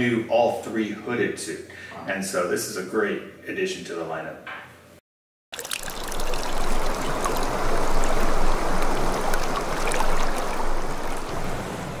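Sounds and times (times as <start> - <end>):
water drips: 5.5 - 11.6
water running and splashing: 5.5 - 12.0.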